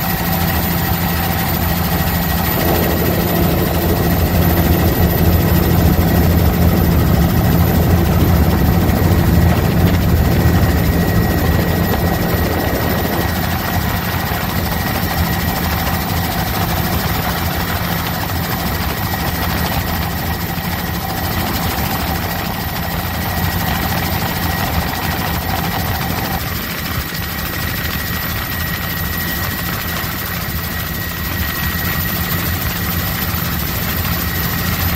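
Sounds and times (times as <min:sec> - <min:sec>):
thin high whine: 0:00.0 - 0:18.4
helicopter rotor and engine drone: 0:00.0 - 0:34.9.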